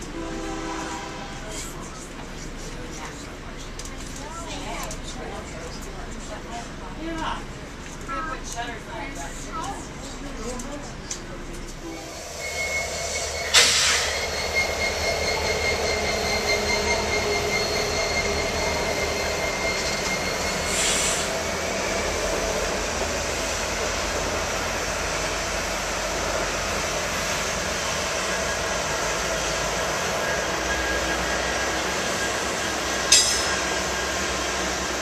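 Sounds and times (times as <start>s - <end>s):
train wheels rumbling on rails: 0.0s - 35.0s
high-pitched squeal: 11.8s - 23.6s
sharp clank: 33.1s - 33.8s.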